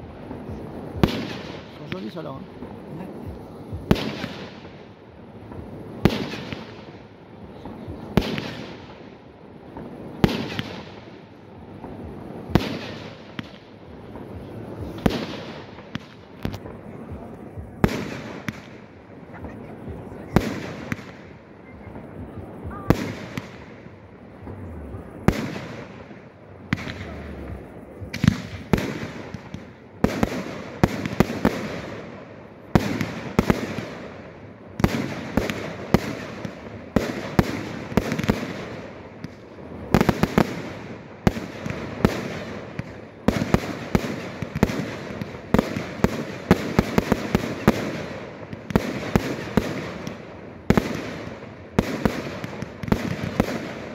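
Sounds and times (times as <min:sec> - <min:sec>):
firework crackling: 0:00.0 - 0:53.9.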